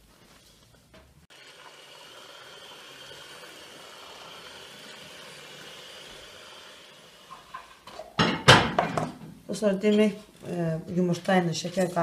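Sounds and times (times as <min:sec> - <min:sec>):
electric hand mixer running: 0:01.3 - 0:07.8.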